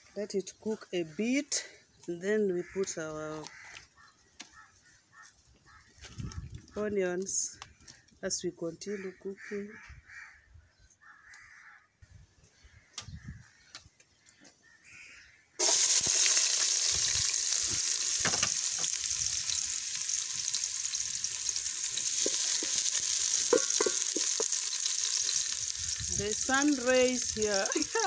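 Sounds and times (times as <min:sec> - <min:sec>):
onions sizzling in hot oil: 0:15.6 - 0:28.0
wooden spoon stirring: 0:21.1 - 0:25.6.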